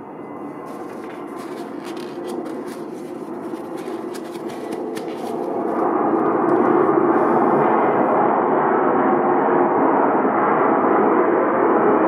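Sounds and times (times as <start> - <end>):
faint constant hum: 0.0 - 12.0
loud steady roar: 5.5 - 12.0.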